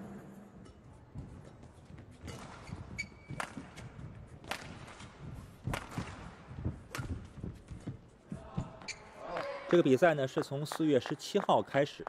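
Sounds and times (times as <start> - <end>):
rackets hitting shuttlecock: 2.2 - 7.2.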